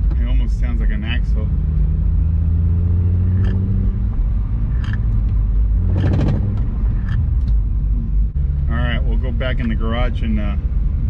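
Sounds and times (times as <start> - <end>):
engine and road noise drone: 0.0 - 11.0.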